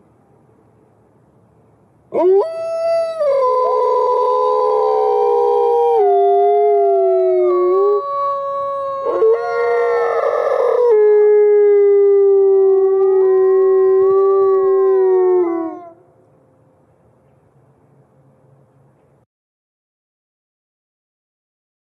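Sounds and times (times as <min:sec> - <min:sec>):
wolves howling: 0:02.1 - 0:16.0.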